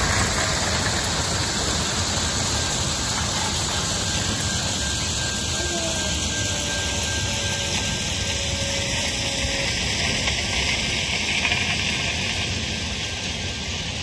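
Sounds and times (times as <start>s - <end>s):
ballast pouring hiss: 0.0s - 14.0s
train wagons rolling: 0.0s - 14.0s
faint thin squeal: 2.6s - 11.8s.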